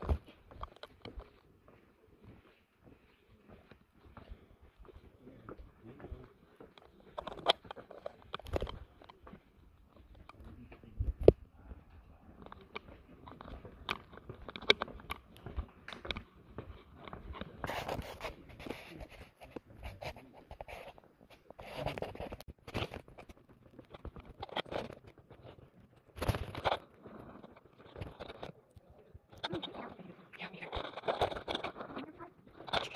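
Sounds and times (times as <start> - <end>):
footsteps on paved trail: 0.0 - 19.8
clothing and camera rustling: 0.0 - 32.9.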